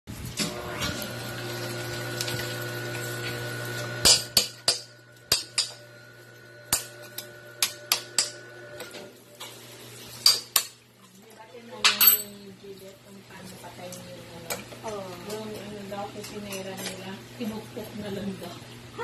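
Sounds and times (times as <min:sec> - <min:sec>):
knife and brush clacking on shells: 0:10.2 - 0:11.2, 0:13.9 - 0:17.1.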